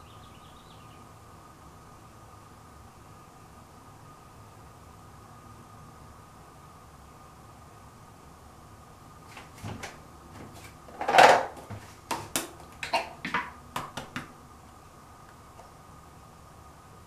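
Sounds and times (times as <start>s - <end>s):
makeup items clattering: 11.0s - 11.7s.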